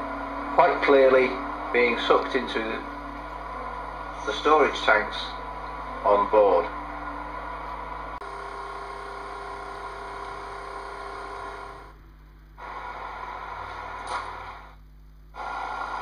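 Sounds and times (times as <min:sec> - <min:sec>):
small motor humming: 0:00.0 - 0:12.0.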